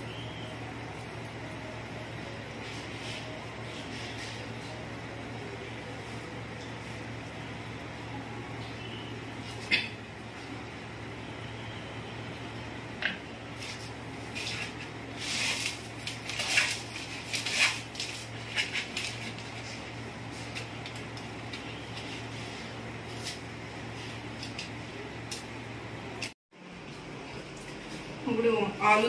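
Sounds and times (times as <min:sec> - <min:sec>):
dry noodles crackling: 0:13.4 - 0:26.3.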